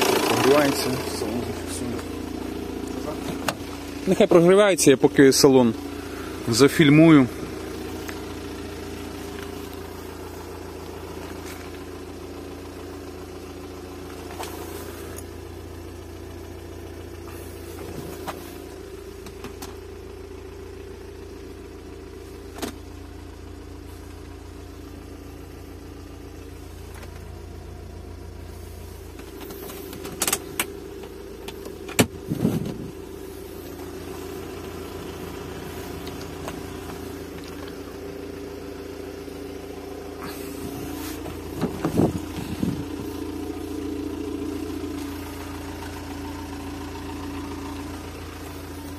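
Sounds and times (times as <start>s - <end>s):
diesel car engine idling: 0.0s - 48.9s
sharp clicks and knocks: 29.2s - 32.8s.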